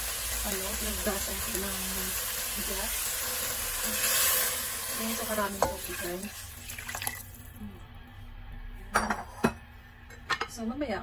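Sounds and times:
water pouring into pot: 0.0 - 7.6.

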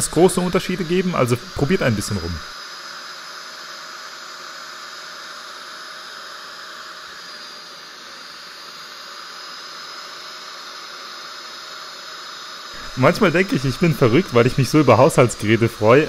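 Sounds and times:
upholstery cleaner suction hiss: 0.0 - 16.0.

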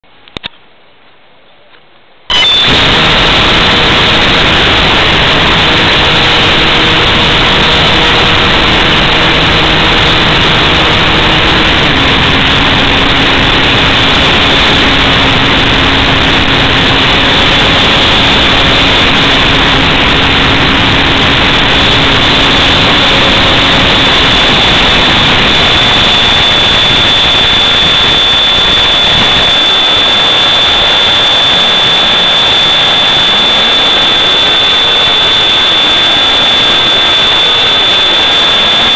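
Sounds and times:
thin high steady tone: 2.3 - 11.9
model plane motor and propeller: 2.3 - 38.9.

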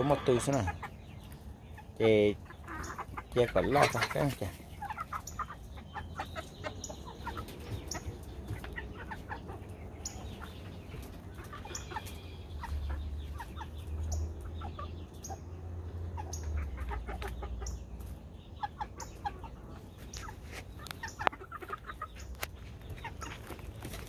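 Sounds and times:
young chickens clucking and chirping: 0.0 - 24.0
sharp pecking ticks: 20.1 - 24.0.

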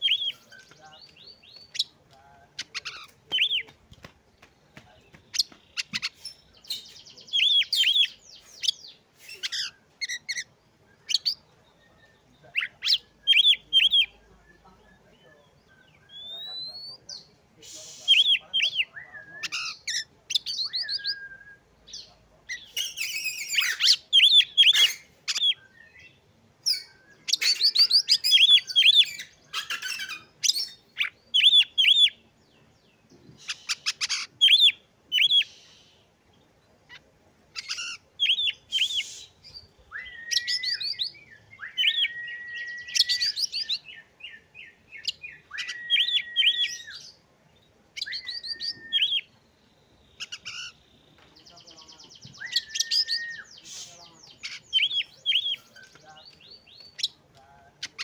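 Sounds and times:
bird singing chirps and trills: 0.0 - 3.8, 4.4 - 58.0
long whistled bird notes: 20.6 - 21.7, 38.3 - 47.2, 48.0 - 49.4, 52.3 - 53.9.

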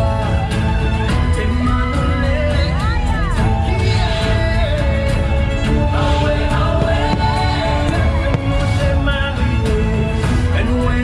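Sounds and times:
music with singing voice: 0.0 - 11.0
fireworks bangs: 6.0 - 9.3.

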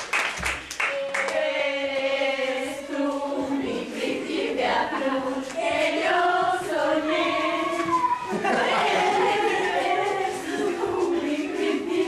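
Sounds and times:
group of voices singing: 0.8 - 12.0.

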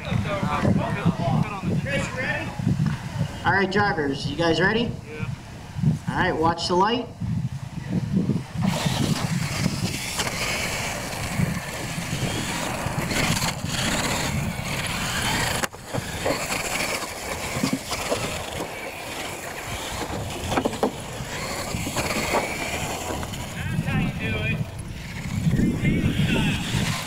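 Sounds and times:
small toy truck motors running: 8.1 - 27.0
tyres churning over dirt: 8.4 - 27.0.

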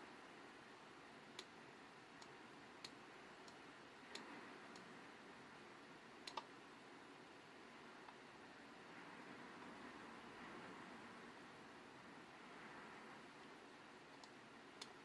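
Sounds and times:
faint hiss: 0.0 - 15.0
light ticks: 2.2 - 4.9, 6.2 - 6.5, 13.4 - 15.0.

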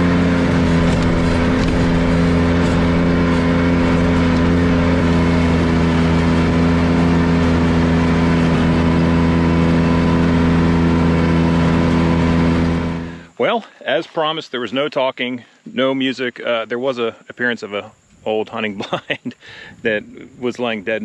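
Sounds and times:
mower deck cutting grass: 0.0 - 13.2
mower engine running steadily: 0.0 - 13.4.

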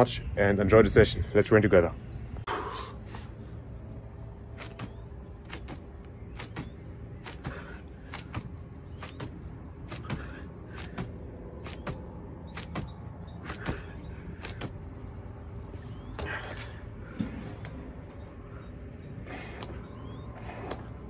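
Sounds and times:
steady low hum: 0.0 - 21.0
hands slapping foam mat: 4.6 - 5.8, 6.4 - 12.0, 12.6 - 13.8, 14.4 - 14.8.

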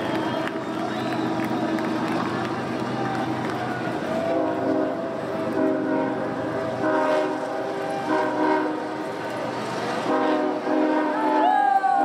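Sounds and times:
train horn blasts: 4.3 - 9.2, 10.0 - 12.0.

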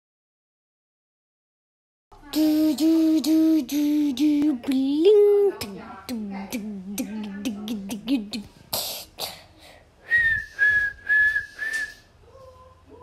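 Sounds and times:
hummed wavering voice: 2.3 - 8.5
breathy blowing noises: 8.5 - 12.1
short whistled notes: 10.1 - 12.1.

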